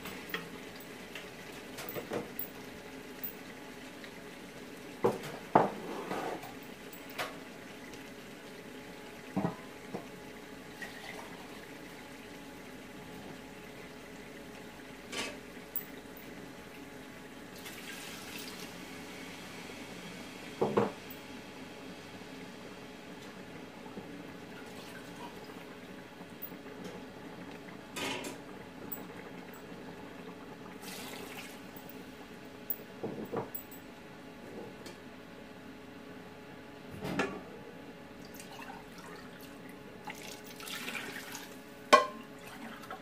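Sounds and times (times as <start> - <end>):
liquid pouring and splashing: 17.6 - 18.7, 30.8 - 31.8, 38.2 - 41.6, 42.4 - 43.0
cookware knocks: 41.9 - 42.2.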